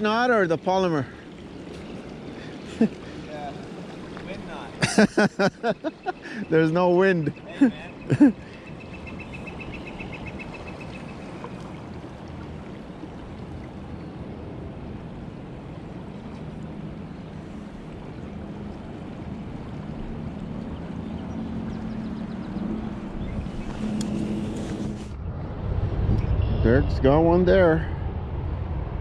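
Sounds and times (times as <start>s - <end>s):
river water running: 0.0s - 25.2s
low engine hum: 7.3s - 29.0s.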